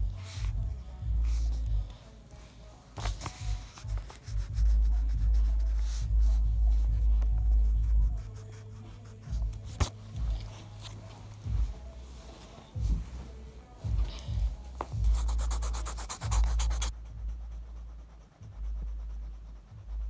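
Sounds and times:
pencil scratching on paper: 3.0s - 11.0s, 14.9s - 20.0s.

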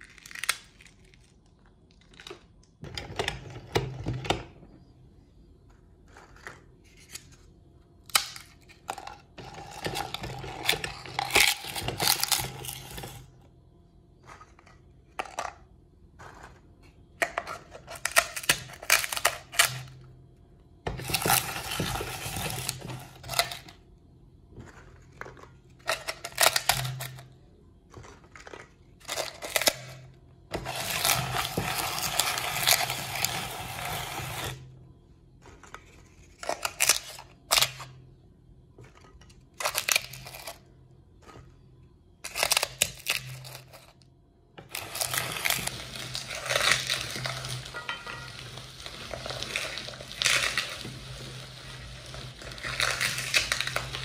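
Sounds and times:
meat grinder crunching cones: 8.9s - 13.3s, 20.9s - 23.7s, 30.6s - 34.6s, 44.6s - 54.0s.

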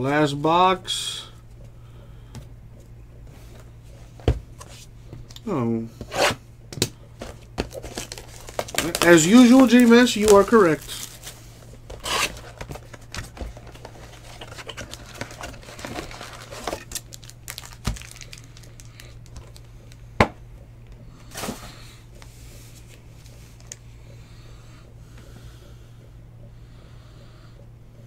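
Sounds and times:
foil wrappers crinkling: 7.2s - 20.0s.

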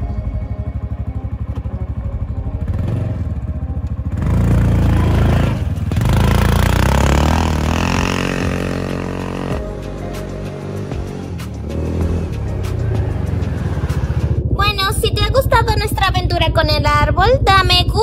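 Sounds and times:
small utility vehicle engine revving: 2.6s - 9.7s, 10.6s - 14.4s.

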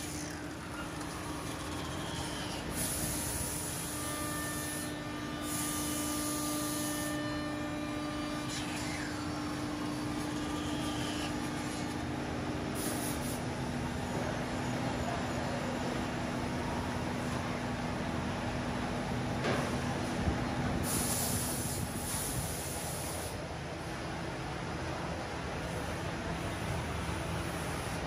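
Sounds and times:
cnc router humming: 0.0s - 12.8s
compressed air hisses: 2.7s - 4.8s, 5.4s - 6.9s, 12.8s - 13.4s, 20.8s - 23.4s.

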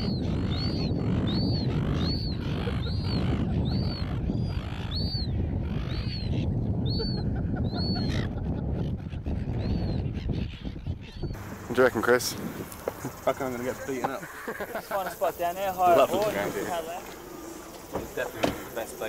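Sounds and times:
wind rumbling on microphone: 0.0s - 14.2s
gulls calling: 0.0s - 19.0s.

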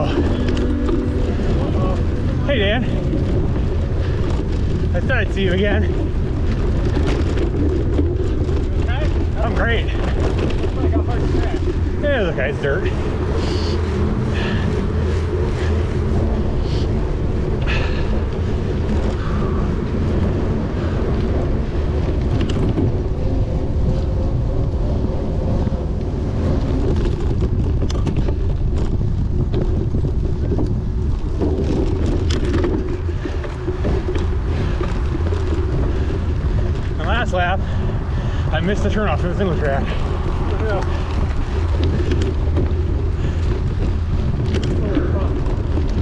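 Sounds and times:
bike clicks and rattles: 0.0s - 46.0s
wind rushing across microphone: 0.0s - 46.0s.

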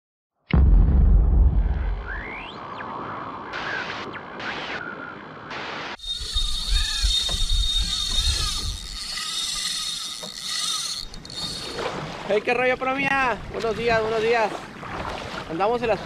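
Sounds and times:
deep boom: 0.5s - 2.6s
rising whoosh: 0.5s - 4.9s
wind and sea hiss: 2.6s - 16.0s
pedal drive squeaking and whine: 6.0s - 11.8s
low irregular thumps: 6.1s - 9.2s.

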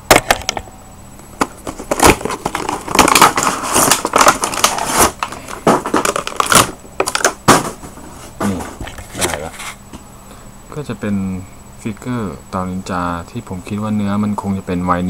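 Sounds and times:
crinkling plastic and tearing cardboard: 1.4s - 7.8s.

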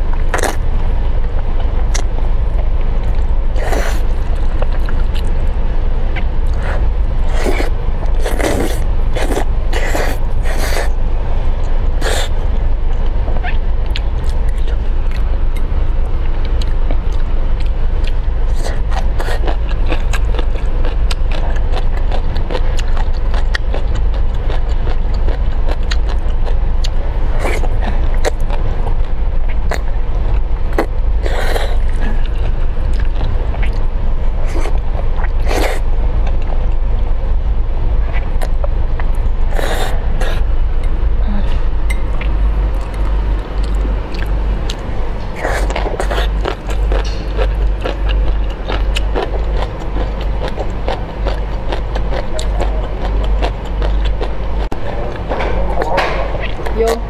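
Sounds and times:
low rumble: 0.0s - 57.0s
noodle slurping: 6.5s - 11.0s, 12.0s - 12.4s.

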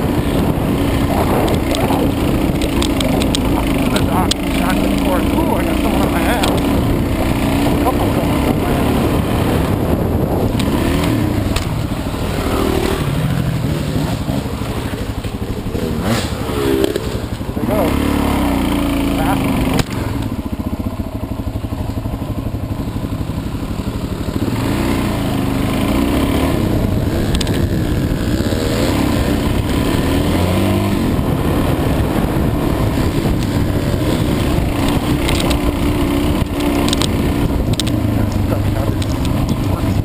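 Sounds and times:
dirt bike engine revving: 0.0s - 40.0s.

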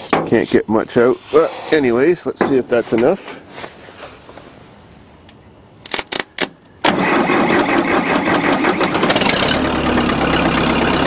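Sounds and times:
tractor engine cranking: 5.8s - 11.0s
tractor engine running: 6.9s - 11.0s.

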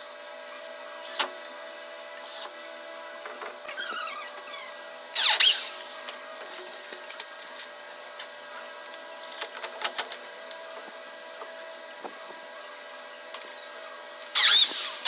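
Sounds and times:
electric drill boring into wood: 14.4s - 15.0s.

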